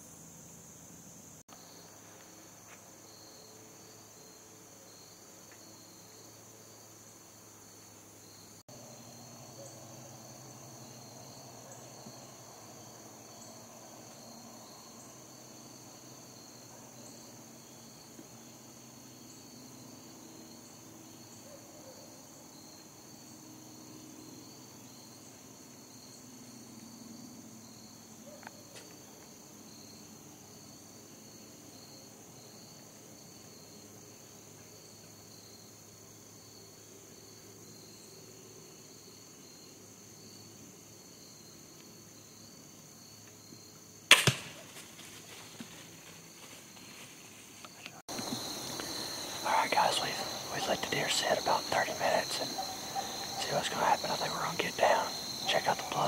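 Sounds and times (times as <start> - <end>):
crickets and insects chirring: 0.0 - 56.0.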